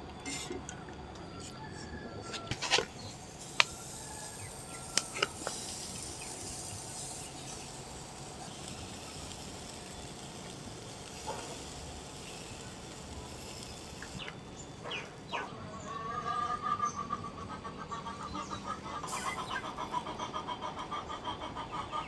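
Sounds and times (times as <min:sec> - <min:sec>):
chicken sizzling over charcoal: 0:02.0 - 0:14.8, 0:19.0 - 0:20.2.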